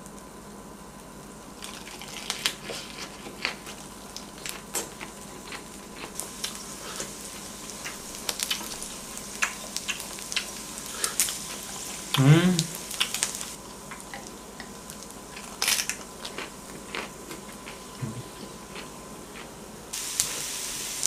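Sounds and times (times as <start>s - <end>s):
close chewing: 1.6s - 12.2s, 12.9s - 19.5s
meat sizzling on a griddle: 5.7s - 13.6s, 19.9s - 21.0s
sharp pops and crackles: 6.0s - 11.8s.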